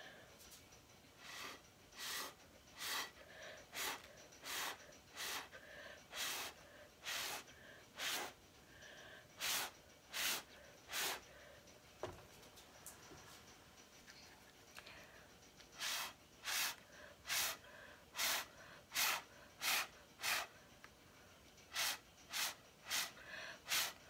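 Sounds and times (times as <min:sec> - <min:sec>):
breath puffs through a straw: 0:01.2 - 0:11.4, 0:15.8 - 0:20.5, 0:21.7 - 0:24.0.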